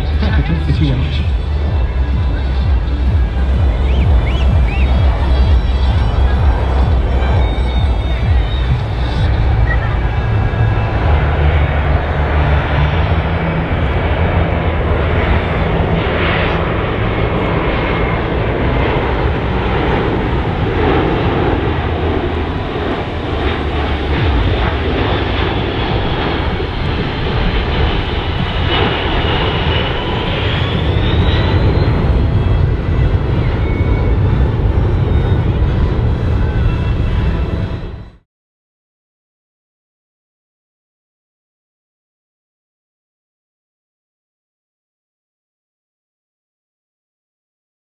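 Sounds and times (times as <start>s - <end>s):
jet engine whine rising: 0.0s - 38.2s
jet engines roaring: 0.0s - 38.2s.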